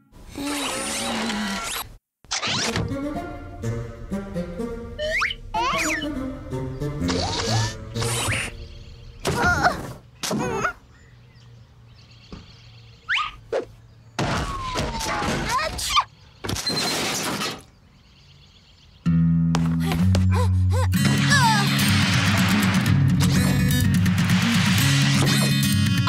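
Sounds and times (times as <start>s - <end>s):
children's tune: 2.7s - 8.9s
cartoon thuds and crashes: 14.2s - 15.8s.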